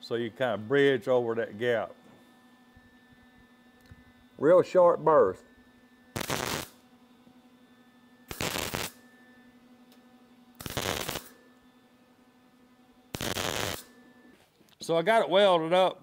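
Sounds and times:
welder arc crackling: 6.2s - 6.8s, 8.3s - 9.0s, 10.6s - 11.4s, 13.1s - 13.9s.

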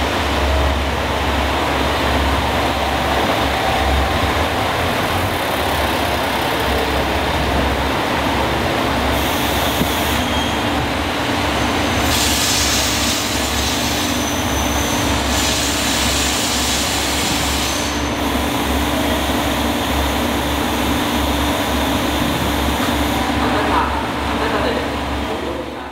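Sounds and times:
diesel railcar engine hum: 0.0s - 25.9s
rail noise: 0.0s - 25.9s
bright hiss: 11.9s - 18.4s.

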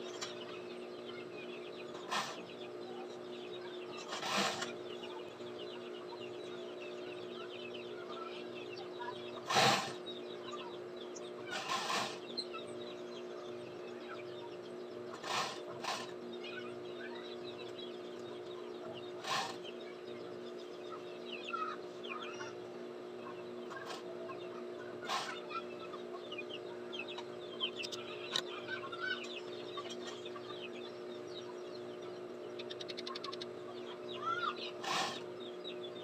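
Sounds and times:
chickens clucking: 0.0s - 36.0s
steady hum: 0.0s - 36.0s.

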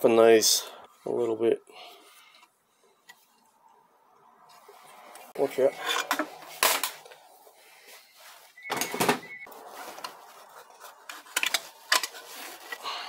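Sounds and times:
steel tools clicking and scraping: 5.8s - 6.3s.

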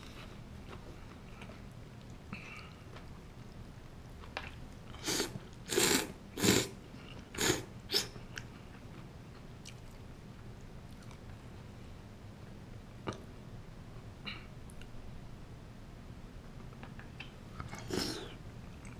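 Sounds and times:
person slurping noodles: 5.0s - 6.8s, 7.4s - 8.1s, 17.7s - 18.4s.

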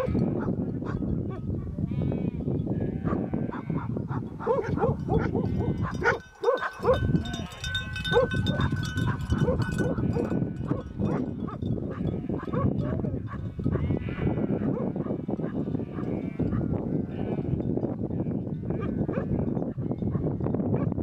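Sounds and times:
sheep bleating: 13.7s - 15.0s, 15.7s - 19.6s.

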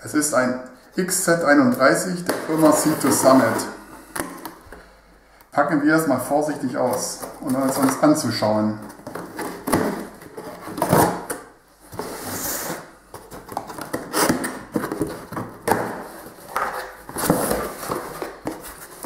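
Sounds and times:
cardboard tearing and rustling: 13.4s - 19.0s.

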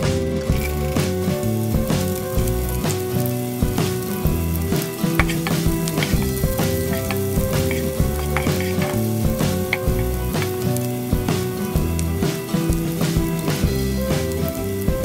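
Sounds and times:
music with stepping notes: 0.0s - 15.0s
shallots sizzling in hot oil: 0.0s - 15.0s
wooden spatula stirring: 4.8s - 10.6s.

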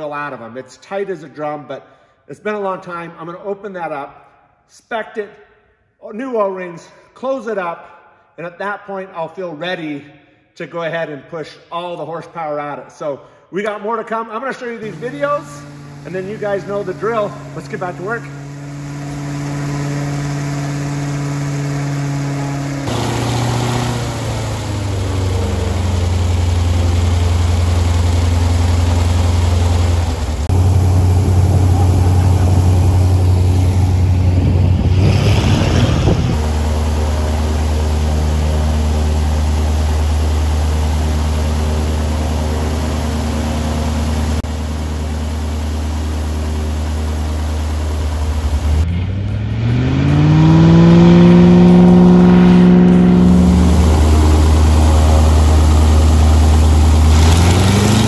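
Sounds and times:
plane piston engine and propeller: 14.8s - 58.0s.

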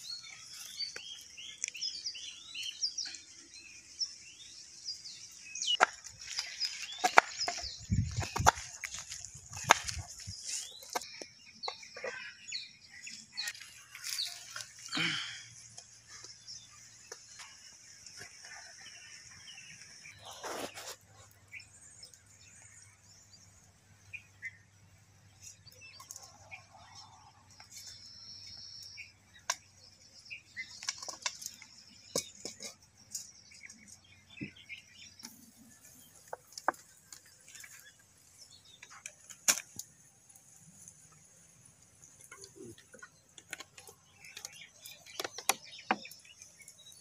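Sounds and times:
birds chirping: 0.0s - 47.0s.

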